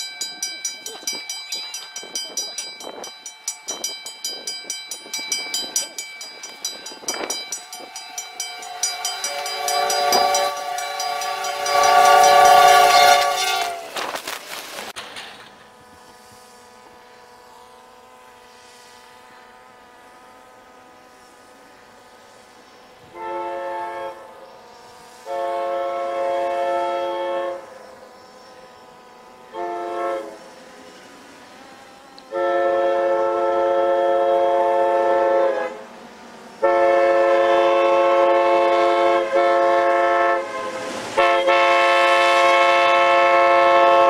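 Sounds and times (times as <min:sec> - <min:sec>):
rapid rhythmic train clatter: 0:00.0 - 0:14.1
train horn chord: 0:07.1 - 0:14.0, 0:15.6 - 0:31.1, 0:32.2 - 0:44.0
short train horn blast: 0:08.6 - 0:14.0, 0:23.1 - 0:24.6, 0:25.2 - 0:28.8, 0:29.5 - 0:30.5, 0:32.3 - 0:36.0, 0:36.6 - 0:44.0.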